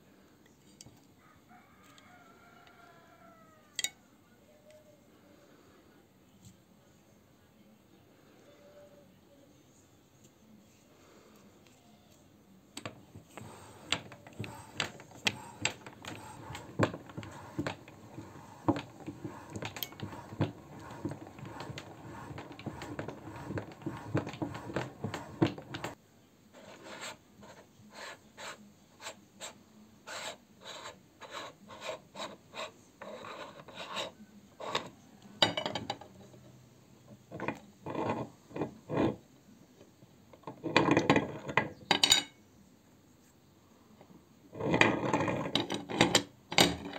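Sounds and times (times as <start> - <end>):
hand-cranked grinder scraping and clicking: 12.8 - 26.0, 37.2 - 39.2, 40.4 - 41.8, 44.6 - 46.9.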